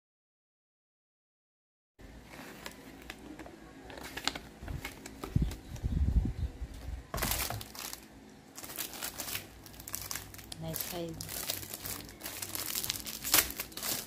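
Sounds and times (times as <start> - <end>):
paper leaflets rustling: 2.2 - 5.6, 7.2 - 14.0
plastic wrap crinkling: 2.2 - 5.7, 7.1 - 14.0.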